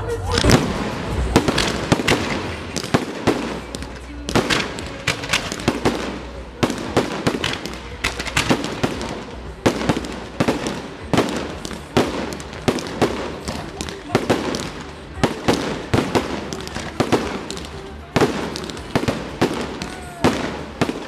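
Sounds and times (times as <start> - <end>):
firework bangs and crackles: 0.0 - 21.0
heavy firework booms: 0.4 - 21.0.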